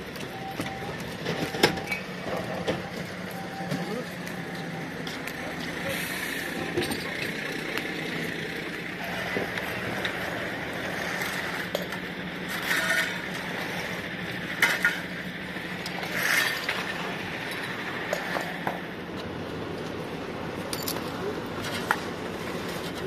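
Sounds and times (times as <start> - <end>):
metallic clinks and pops: 20.7 - 21.2.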